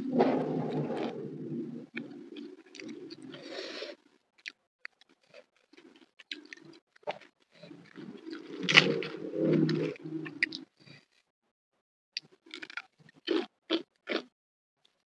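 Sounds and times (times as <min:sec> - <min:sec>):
close-up chewing crunches: 0:04.4 - 0:10.6, 0:12.2 - 0:14.3.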